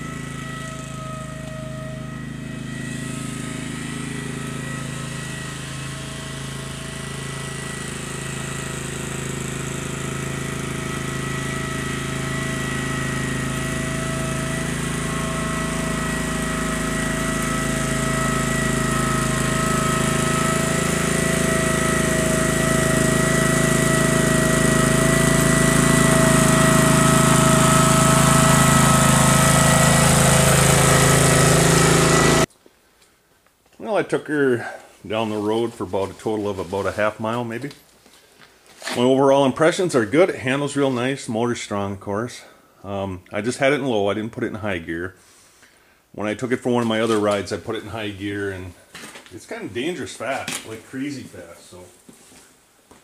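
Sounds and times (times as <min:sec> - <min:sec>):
high whine: 0:00.0 - 0:06.6
garden tractor engine running: 0:00.0 - 0:32.5, 0:33.8 - 0:41.1, 0:46.4 - 0:51.9.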